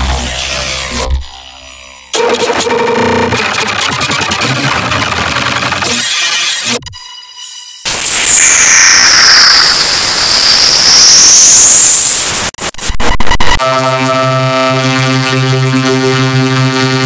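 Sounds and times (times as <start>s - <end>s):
loud distorted noise wash: 0.0s - 2.2s
buzzy synthesizer drone: 0.0s - 3.8s, 7.0s - 17.0s.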